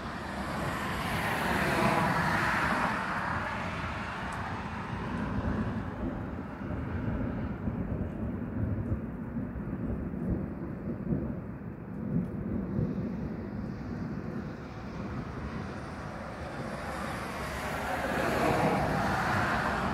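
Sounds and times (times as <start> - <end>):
low rolling thunder: 4.6 - 19.9
passing car hiss: 14.6 - 19.9.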